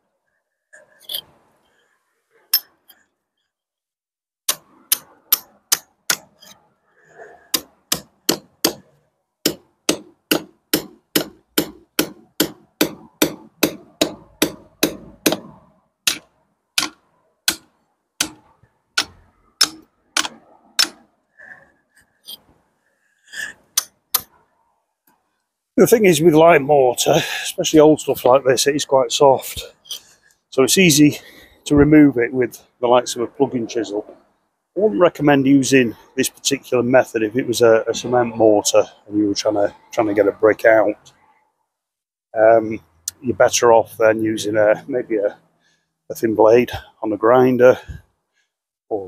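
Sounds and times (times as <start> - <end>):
hammer striking metal chisel: 4.5 - 6.6, 7.5 - 15.5, 16.1 - 21.0, 23.3 - 24.3.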